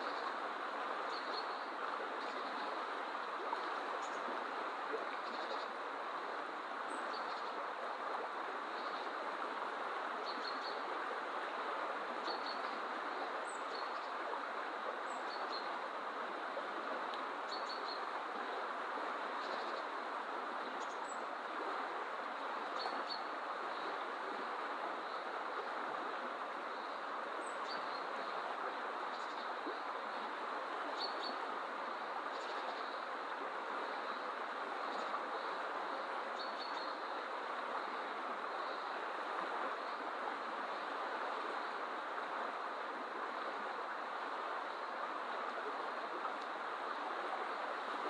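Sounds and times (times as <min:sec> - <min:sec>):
river water rushing: 0:00.0 - 0:48.0.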